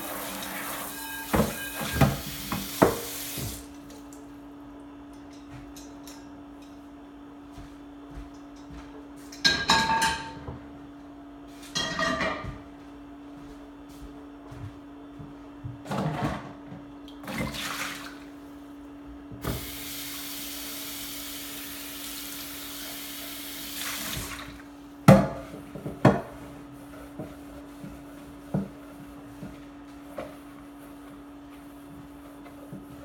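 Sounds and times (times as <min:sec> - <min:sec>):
faucet running into sink: 0:00.0 - 0:03.6, 0:19.4 - 0:24.5
dishes clattering: 0:01.0 - 0:02.2, 0:09.4 - 0:10.5, 0:11.8 - 0:12.5.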